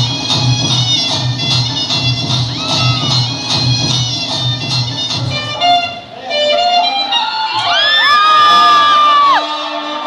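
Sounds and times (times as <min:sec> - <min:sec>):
drumming: 0:00.0 - 0:05.8
reedy wind instrument melody: 0:00.0 - 0:10.0.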